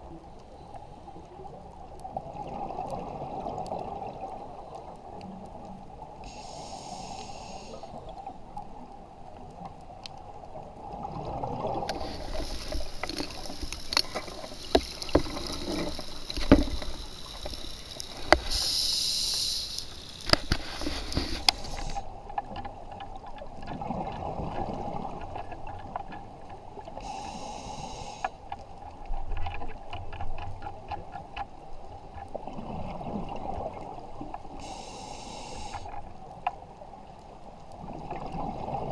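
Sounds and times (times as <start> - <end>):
scuba regulator breathing hiss: 6.2 - 8.0, 11.9 - 22.1, 27.0 - 28.4, 34.5 - 36.0
bubbling: 11.1 - 22.1.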